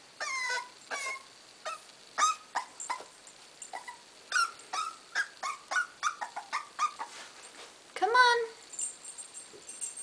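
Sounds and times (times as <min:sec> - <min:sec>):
puppy whimpering: 0:00.2 - 0:03.1, 0:03.7 - 0:07.2.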